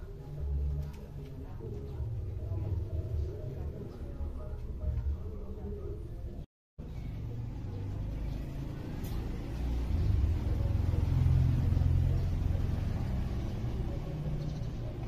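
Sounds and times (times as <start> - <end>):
passing motor vehicle rumble: 6.8 - 15.0.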